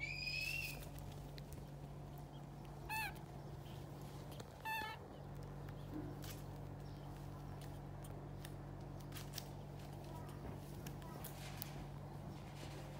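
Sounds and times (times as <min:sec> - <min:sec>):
baby monkey calling: 0:00.0 - 0:01.0, 0:02.1 - 0:05.2
steady low hum: 0:00.0 - 0:12.9.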